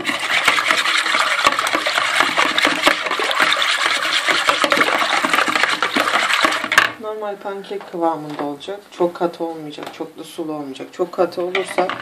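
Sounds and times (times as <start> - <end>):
whisk beating eggs in a bowl: 0.0 - 6.9.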